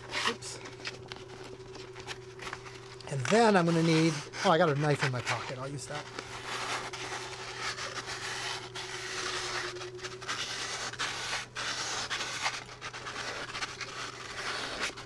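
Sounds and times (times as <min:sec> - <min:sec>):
sandpaper rubbing on metal: 0:03.1 - 0:15.0.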